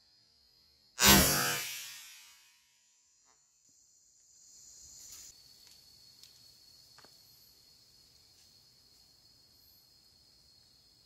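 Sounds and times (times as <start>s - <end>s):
high-pitched insect trilling: 3.6s - 6.4s.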